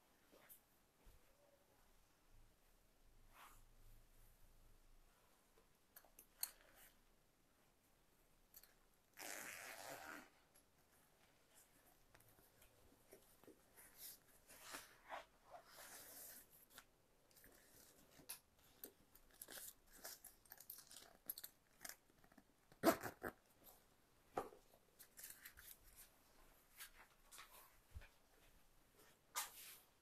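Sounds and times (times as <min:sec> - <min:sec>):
faint rustling and light clicks: 0:23.6 - 0:30.0.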